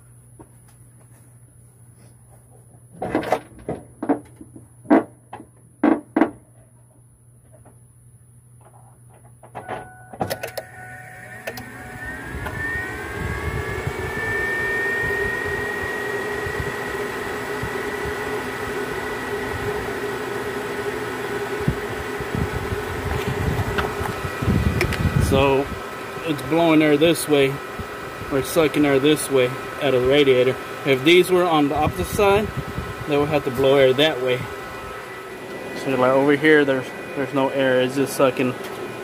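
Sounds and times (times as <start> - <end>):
cooling fans whining and rushing: 9.4 - 39.0.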